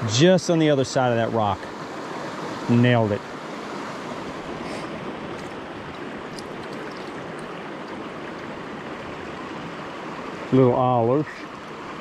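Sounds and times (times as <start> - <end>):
creek running over rocks: 3.7 - 11.6.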